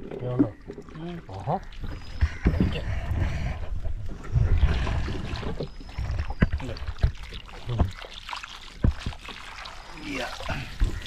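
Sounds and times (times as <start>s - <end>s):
net and rope rustling on hull: 0.0s - 11.0s
water splashing and dripping: 4.1s - 11.0s.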